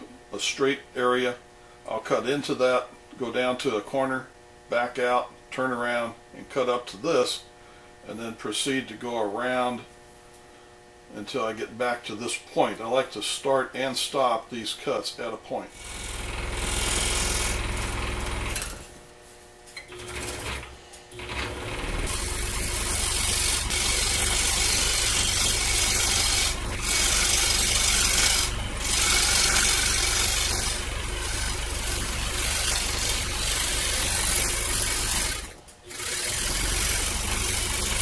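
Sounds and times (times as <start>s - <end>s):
scroll saw motor hum: 15.7s - 19.0s, 19.8s - 38.0s
saw blade rasping through plywood: 15.8s - 17.6s, 22.0s - 38.0s.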